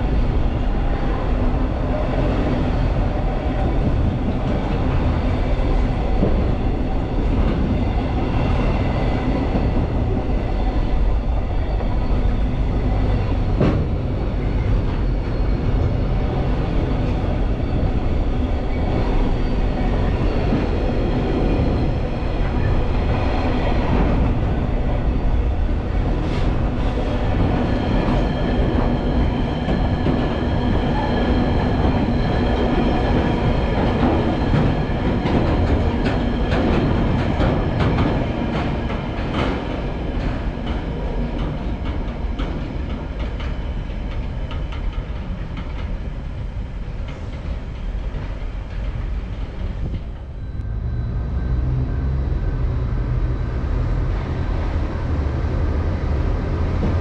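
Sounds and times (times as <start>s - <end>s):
train rumbling past: 0.0s - 57.0s
train wheels clicking over rail joints: 22.4s - 50.7s.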